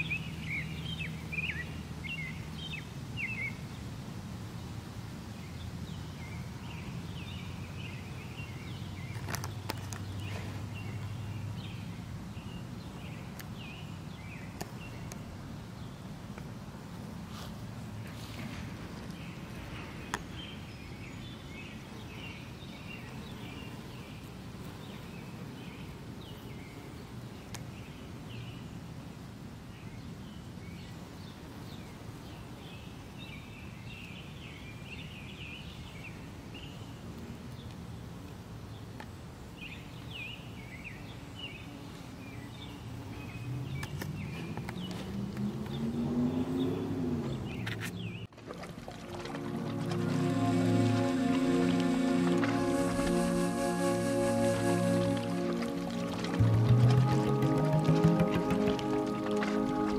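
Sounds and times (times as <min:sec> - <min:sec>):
small birds chirping: 0:00.0 - 0:04.8, 0:38.7 - 0:48.3
low droning rising in pitch: 0:49.0 - 0:59.9.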